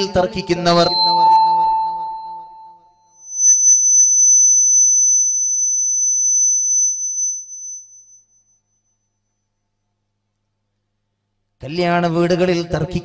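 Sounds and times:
steady high-pitched tone: 0.0s - 9.1s.

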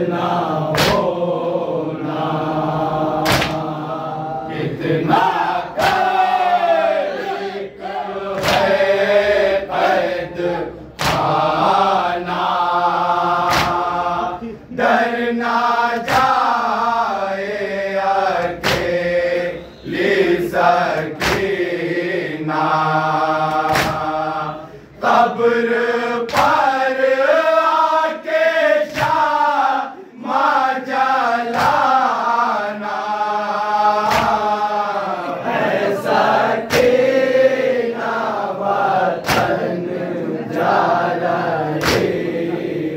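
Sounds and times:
men chanting in unison: 0.0s - 42.9s
hands slapping chests: 0.7s - 1.1s, 3.2s - 3.8s, 5.8s - 6.3s, 8.3s - 8.9s, 11.0s - 11.6s, 13.3s - 14.0s, 16.0s - 16.6s, 18.4s - 19.0s, 20.9s - 21.6s, 23.5s - 24.2s, 26.3s - 26.8s, 28.8s - 29.4s, 31.4s - 32.0s, 34.0s - 34.6s, 36.6s - 37.1s, 39.2s - 39.7s, 41.7s - 42.2s.

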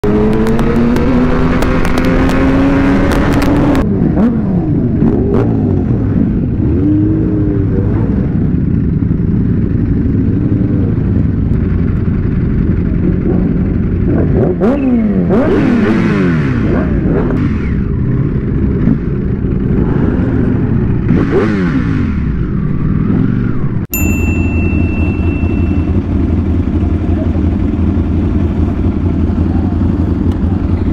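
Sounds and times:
motorcycle engine revving: 0.0s - 30.9s
steady high tone: 23.9s - 26.4s.

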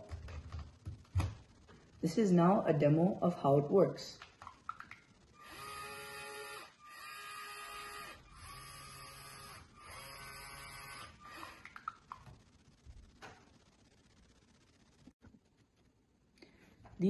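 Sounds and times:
electric motor whine: 5.4s - 11.6s.

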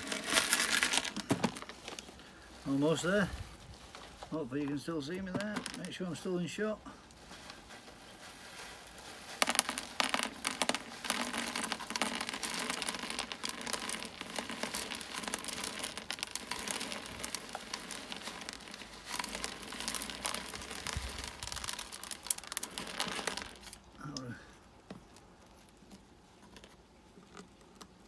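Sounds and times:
grit trickling into plastic: 0.0s - 4.4s, 7.0s - 24.3s
plastic bag crinkling: 0.0s - 24.3s.

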